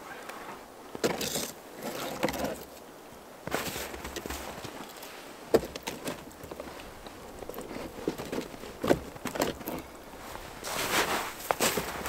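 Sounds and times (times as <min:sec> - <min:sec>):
footsteps crunching through snow: 0:10.0 - 0:12.0.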